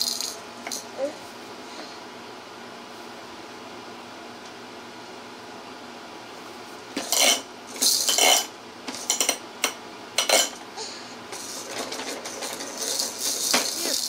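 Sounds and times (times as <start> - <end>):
hard objects clattering: 11.3 - 14.0.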